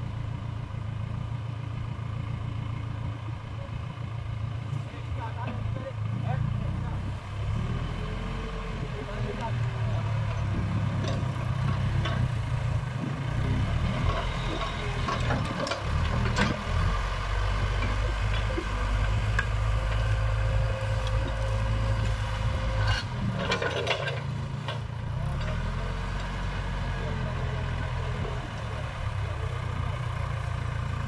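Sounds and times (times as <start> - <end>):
diesel engine running: 0.0 - 31.0
sharp clicks and knocks: 14.1 - 16.7.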